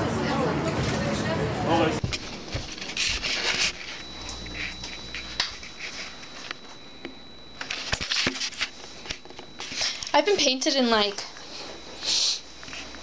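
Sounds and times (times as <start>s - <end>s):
faint high whine: 1.9s - 13.0s
camera handling rustles and clicks: 7.6s - 10.1s.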